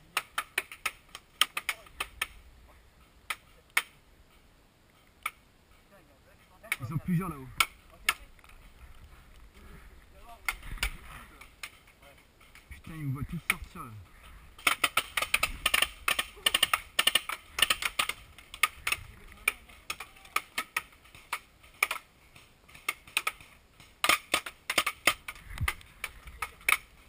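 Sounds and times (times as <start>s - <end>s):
paintball markers firing: 0.1s - 2.4s, 14.6s - 27.0s.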